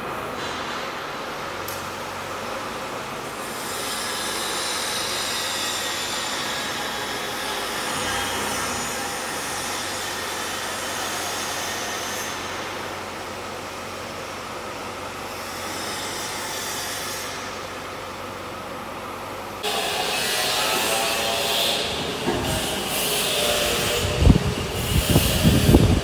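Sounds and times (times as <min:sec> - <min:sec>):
low machinery hum: 0:00.0 - 0:26.0.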